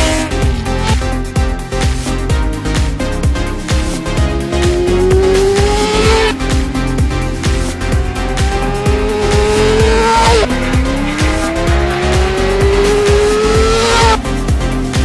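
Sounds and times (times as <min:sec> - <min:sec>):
motorcycle engine revving: 0:00.0 - 0:15.0
music with steady beat: 0:00.0 - 0:15.0.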